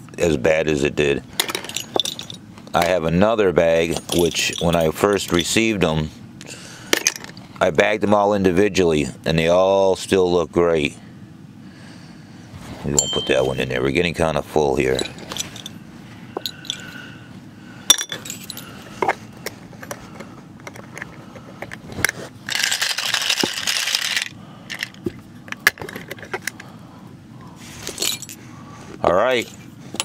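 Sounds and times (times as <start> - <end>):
metal clinking against glass: 1.4 - 2.4, 3.9 - 5.6, 13.0 - 13.9, 14.8 - 15.8, 16.4 - 17.0, 17.9 - 18.8
metal parts rattling in jar: 1.4 - 3.0, 3.7 - 5.7, 7.0 - 7.4, 14.8 - 15.8, 16.4 - 17.0, 17.9 - 19.2, 20.6 - 26.6, 27.9 - 28.4.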